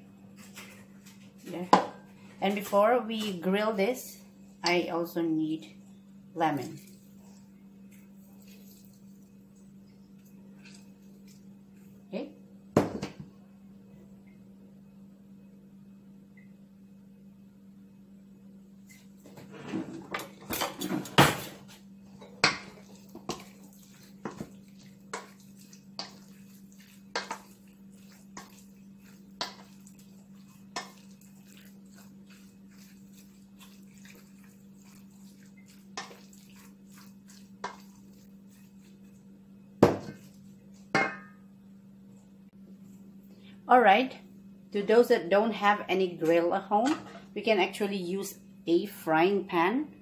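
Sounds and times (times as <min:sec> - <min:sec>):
faint steady hum: 0:00.0 - 0:50.0
steel bowl knocking and clinking: 0:41.0 - 0:41.4.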